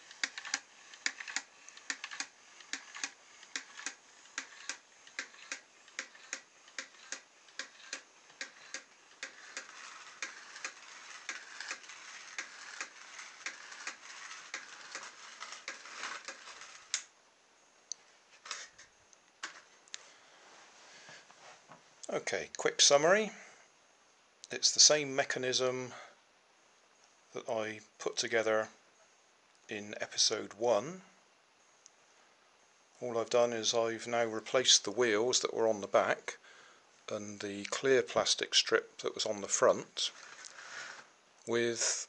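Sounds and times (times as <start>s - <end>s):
mechanism clicking: 0.0s - 17.1s
small motor whirring: 0.0s - 17.1s.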